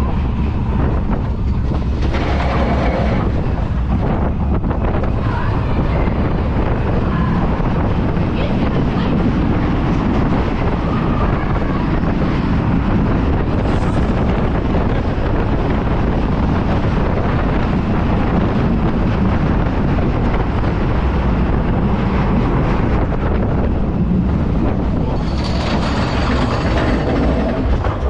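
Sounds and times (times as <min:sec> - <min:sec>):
roller coaster rumbling on track: 0:00.0 - 0:28.0
wind rush on microphone: 0:00.0 - 0:28.0.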